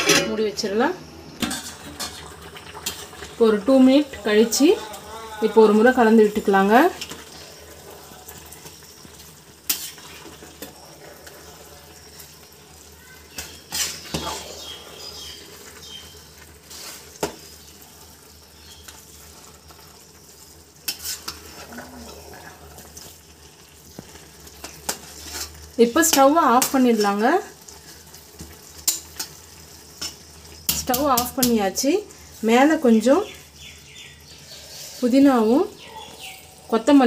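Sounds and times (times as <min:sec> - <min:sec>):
soft sizzle of cooking rice: 0:00.0 - 0:37.0
metal ladle scraping rice: 0:09.6 - 0:11.7, 0:13.4 - 0:15.8, 0:16.6 - 0:17.5, 0:20.9 - 0:22.1, 0:24.6 - 0:25.6.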